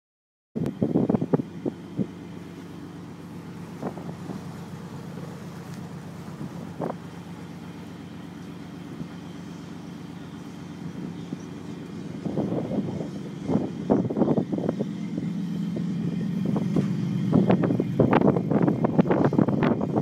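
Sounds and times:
wind on microphone: 0.6s - 2.3s, 3.6s - 7.3s, 10.8s - 20.0s
boat engines droning: 0.6s - 20.0s.

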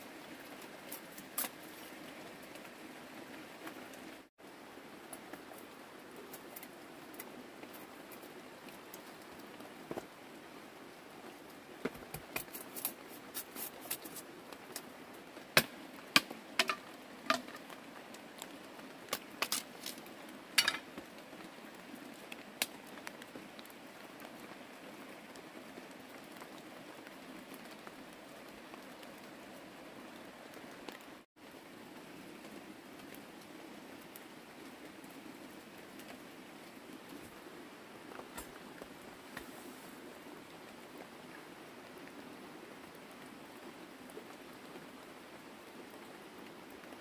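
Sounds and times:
sticks snapping: 15.6s - 17.6s
steady soft hiss: 34.1s - 42.4s.

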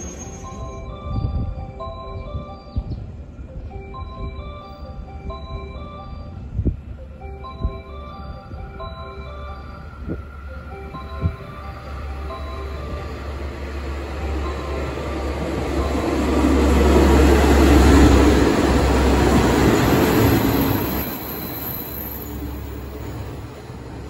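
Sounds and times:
diesel train engine drone: 0.0s - 24.0s
train wheel noise: 6.3s - 24.0s.

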